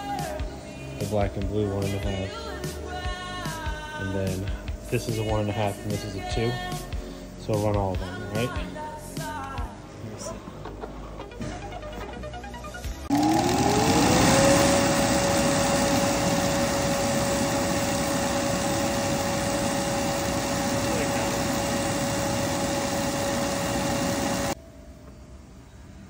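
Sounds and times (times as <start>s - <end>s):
blower motor whine: 11.6s - 25.2s.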